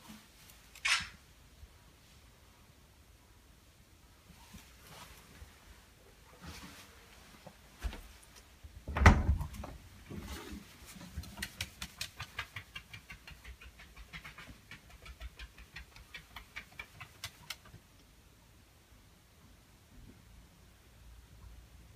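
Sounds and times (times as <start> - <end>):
dog claws clicking on wooden floor: 11.2 - 17.8.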